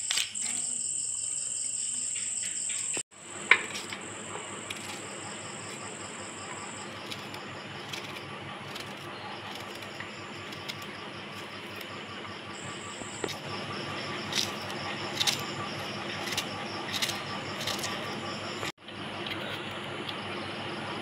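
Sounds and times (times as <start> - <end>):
insects chirping: 0.0 - 21.0
knife clicking through onion: 7.0 - 11.9, 14.2 - 18.2.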